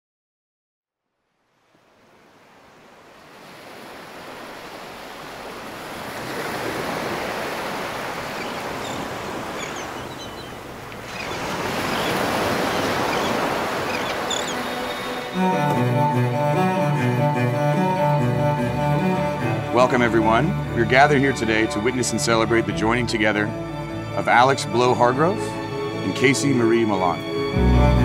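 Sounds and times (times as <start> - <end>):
waves breaking on a beach: 1.5 - 15.6.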